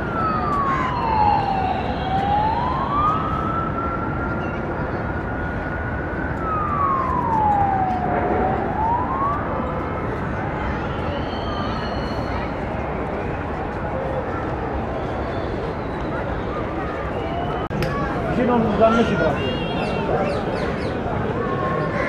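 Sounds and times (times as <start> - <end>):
siren rising and falling: 0.0 - 12.6
steady background noise: 0.0 - 22.0.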